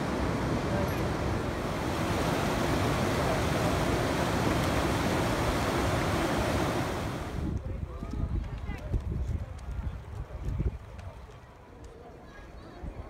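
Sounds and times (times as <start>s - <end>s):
river rushing over boulders: 0.0s - 7.6s.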